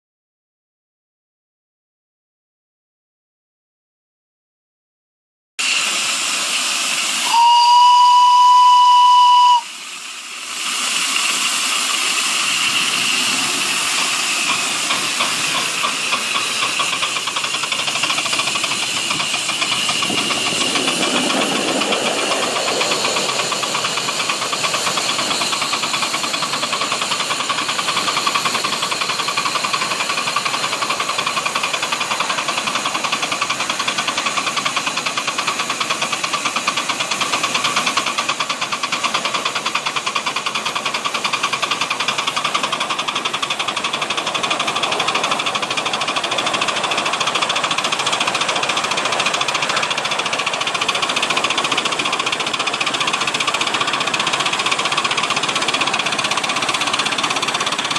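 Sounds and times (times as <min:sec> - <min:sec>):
steam hissing: 0:05.6 - 0:57.9
locomotive exhaust chuffs: 0:05.7 - 0:57.9
steam whistle blast: 0:07.1 - 0:09.9.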